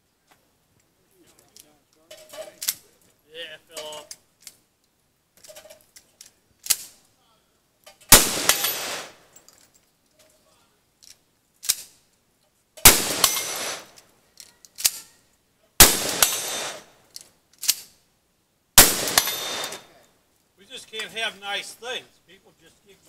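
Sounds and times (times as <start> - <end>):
loud gunshots: 8.1 - 9.2, 12.8 - 13.9, 15.8 - 16.9, 18.8 - 20.0.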